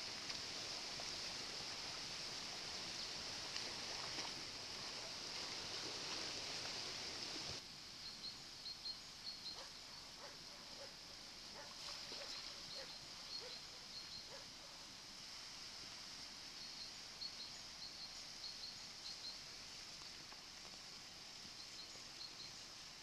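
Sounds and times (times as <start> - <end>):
river rushing with ice floes: 0.0 - 7.6.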